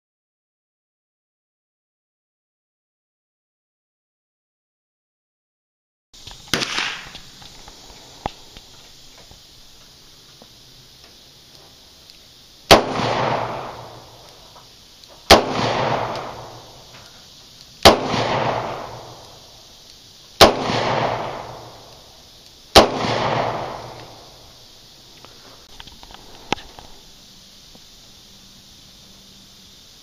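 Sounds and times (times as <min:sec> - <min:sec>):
revolver shots with echo: 0:15.3 - 0:16.6, 0:17.8 - 0:19.1.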